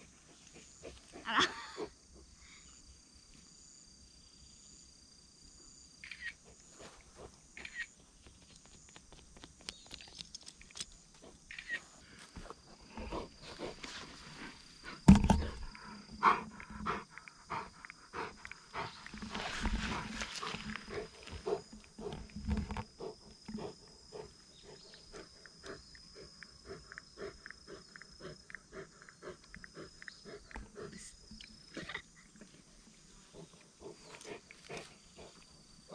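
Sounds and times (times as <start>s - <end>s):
dog panting: 15.6s - 22.2s, 23.0s - 31.2s, 33.2s - 35.5s.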